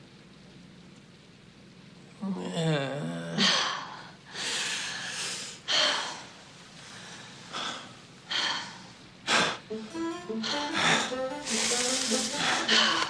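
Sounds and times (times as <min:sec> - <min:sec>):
hummed moan: 0:02.2 - 0:03.6.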